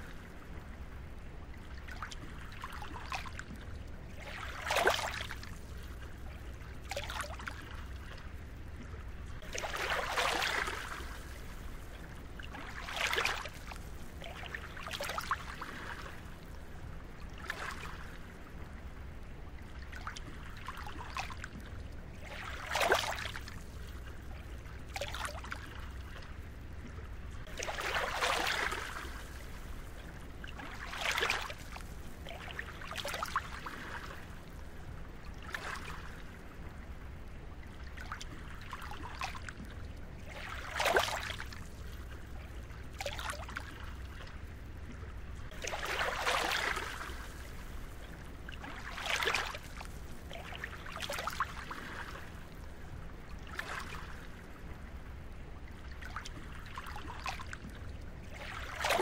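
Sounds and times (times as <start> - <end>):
waves lapping on sandy shore: 9.4 - 11.8, 12.5 - 16.4, 27.4 - 29.6, 30.6 - 34.4, 40.3 - 41.7, 45.5 - 47.9, 48.5 - 52.4, 58.3 - 59.0.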